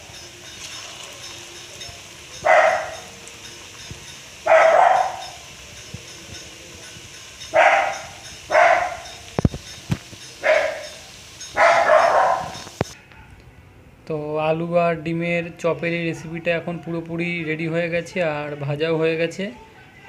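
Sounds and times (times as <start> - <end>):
food sizzling in hot oil: 0.0 - 13.0
dog barking: 2.4 - 3.1, 4.4 - 5.4, 7.5 - 9.2, 10.4 - 13.4.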